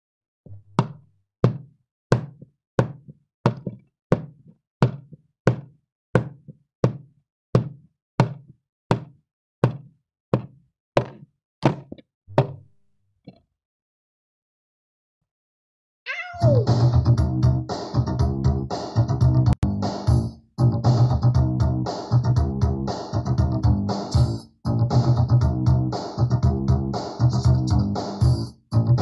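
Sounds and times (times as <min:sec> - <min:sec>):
footsteps on hard floor: 0:00.5 - 0:12.6.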